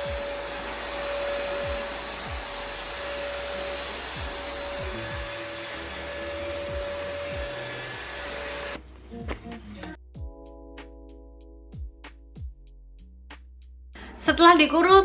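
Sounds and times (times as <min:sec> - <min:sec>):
handheld vacuum running: 0:00.0 - 0:08.8.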